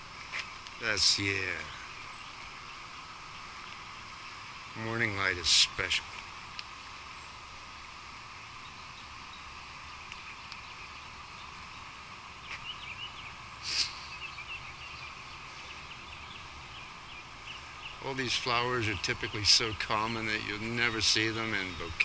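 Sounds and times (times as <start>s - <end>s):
steady background hiss: 0.0s - 22.0s
faint bird chirps: 8.4s - 22.0s
sharp noisy burst: 13.6s - 14.2s.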